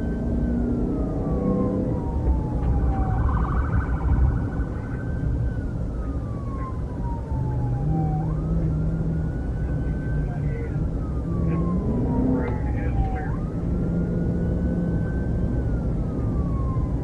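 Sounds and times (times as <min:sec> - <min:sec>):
low rumble of road noise: 0:00.0 - 0:17.0
police siren wailing: 0:00.0 - 0:17.0.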